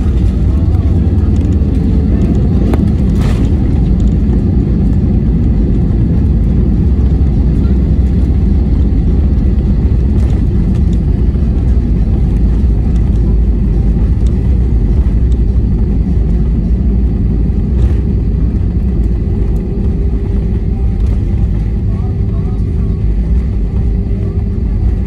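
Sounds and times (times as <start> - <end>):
aircraft cabin engine rumble: 0.0 - 25.0.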